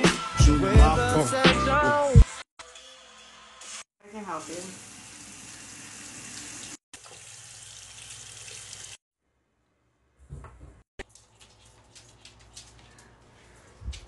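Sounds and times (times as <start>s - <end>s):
tap water running into sink: 4.4s - 9.0s.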